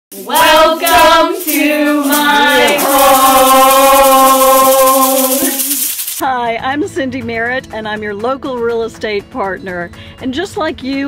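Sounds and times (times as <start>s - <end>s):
group singing: 0.1s - 6.0s
egg shakers rattling: 0.1s - 6.2s.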